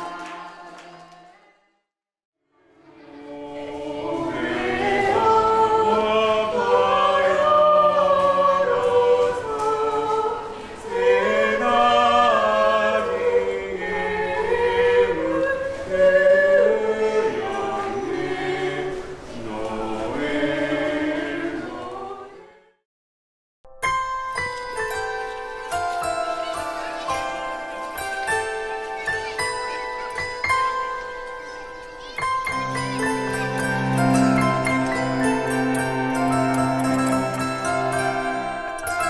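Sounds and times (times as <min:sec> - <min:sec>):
group of voices singing in parts: 0:00.0 - 0:01.3, 0:02.8 - 0:22.8, 0:32.5 - 0:39.0.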